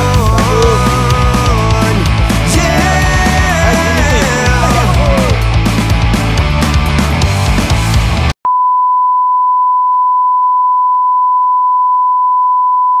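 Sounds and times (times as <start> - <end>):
rock music: 0.0 - 8.4.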